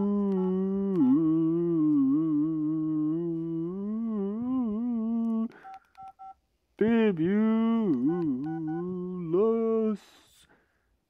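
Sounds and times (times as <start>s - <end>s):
person humming low note: 0.0s - 5.5s, 7.2s - 9.4s
two-tone keypad beeps: 8.5s - 8.8s.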